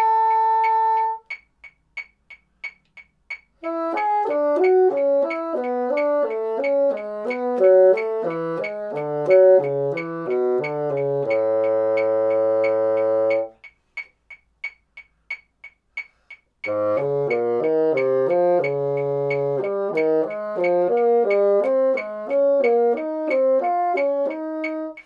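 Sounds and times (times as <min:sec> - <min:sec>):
bassoon playing: 0:00.0 - 0:01.3, 0:03.6 - 0:13.6, 0:16.7 - 0:25.0
metronome clicking: 0:00.0 - 0:25.0.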